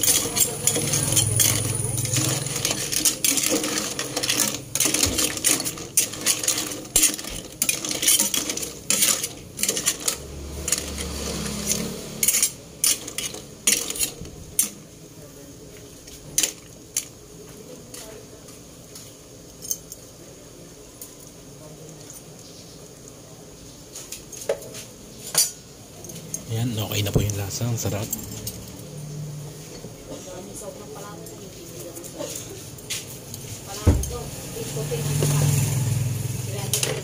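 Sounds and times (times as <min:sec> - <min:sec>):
clam shells clinking in metal pot: 0:00.0 - 0:14.8, 0:36.5 - 0:37.0.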